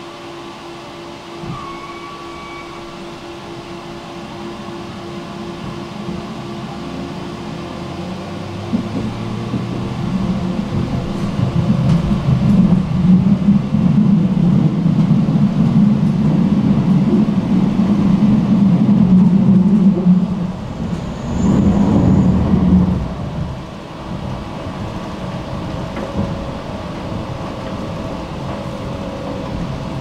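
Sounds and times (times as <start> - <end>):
tram electrical hum: 0.0 - 30.0
wheels rumbling on track: 0.0 - 30.0.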